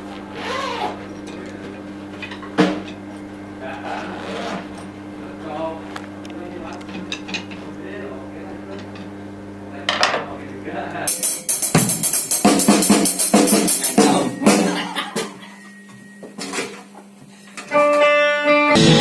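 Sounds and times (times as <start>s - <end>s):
amplifier hum: 0.0s - 19.0s
cymbal crash: 11.1s - 15.0s
drum kit hits: 11.1s - 15.4s, 17.8s - 19.0s
pitched instrument: 11.1s - 16.5s, 17.7s - 19.0s.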